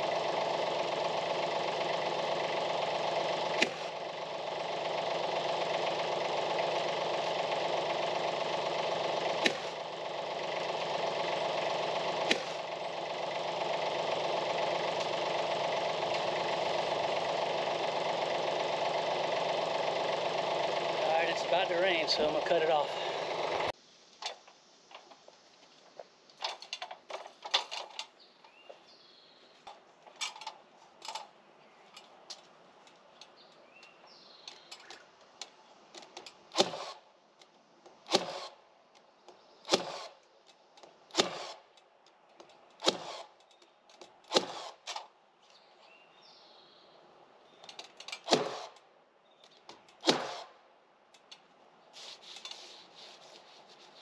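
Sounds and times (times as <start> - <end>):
nail gun firing: 9.4 - 9.7, 12.2 - 12.6, 36.5 - 37.0, 38.1 - 38.6, 39.7 - 40.2, 41.1 - 41.6, 42.8 - 43.3, 44.3 - 45.0, 48.2 - 48.8, 50.0 - 50.5
birds chirping: 12.6 - 23.8, 27.7 - 30.4, 31.0 - 36.6, 39.0 - 41.1, 45.4 - 48.3, 49.1 - 50.0.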